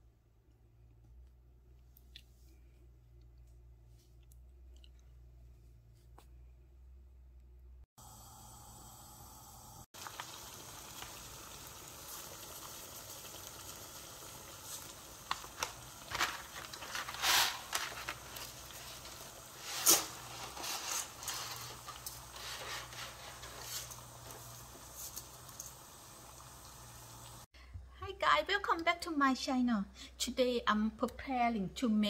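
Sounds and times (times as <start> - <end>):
water boiling and bubbling: 8.0 - 27.5
dry pasta rustling and clattering: 14.0 - 26.0.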